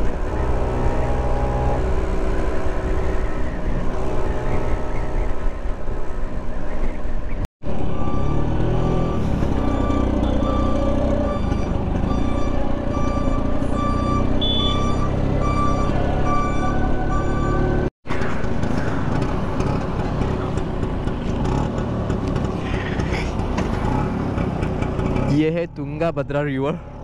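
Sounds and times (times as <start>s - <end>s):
road and wind noise: 0.0s - 27.0s
repeating beep: 8.0s - 17.7s
scooter engine running: 14.3s - 14.9s, 18.2s - 25.3s.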